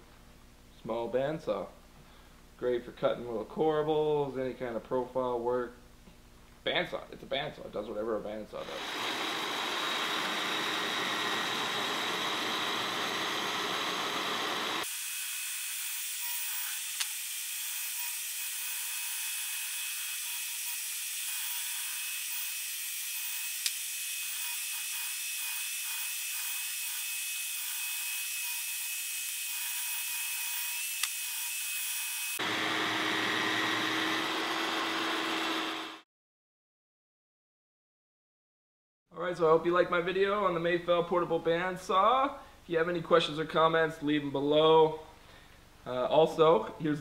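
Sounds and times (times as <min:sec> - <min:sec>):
bandsaw cutting wood: 0:08.6 - 0:36.0.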